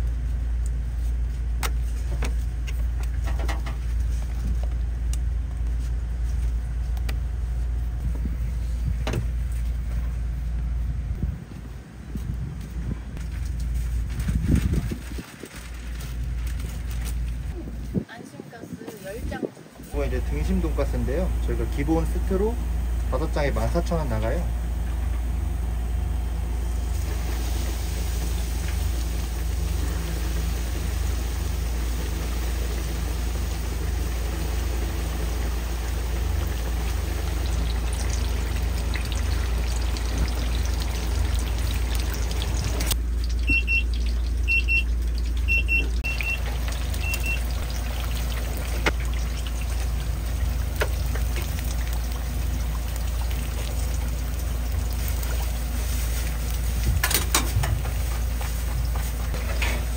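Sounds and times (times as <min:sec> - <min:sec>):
low machine hum: 0:00.0 - 0:59.9
food deep-frying in oil: 0:20.0 - 0:59.9
high beeps: 0:43.5 - 0:43.9, 0:44.5 - 0:44.9.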